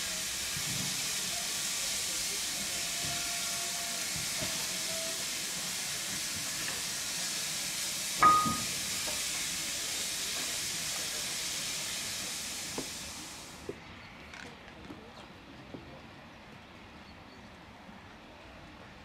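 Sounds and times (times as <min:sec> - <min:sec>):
steam hissing from locomotive: 0:00.0 - 0:13.7
sharp metallic clank: 0:08.2 - 0:08.8.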